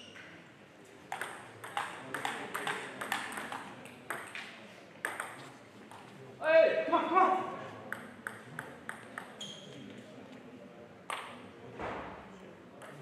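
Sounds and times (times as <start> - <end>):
table tennis ball hits: 1.1 - 6.0, 7.9 - 9.4.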